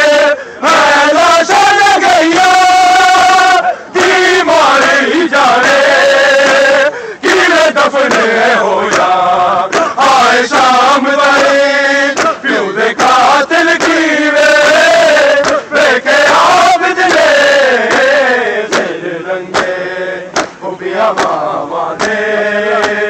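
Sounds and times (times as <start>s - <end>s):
men chanting a lament: 0.0s - 23.0s.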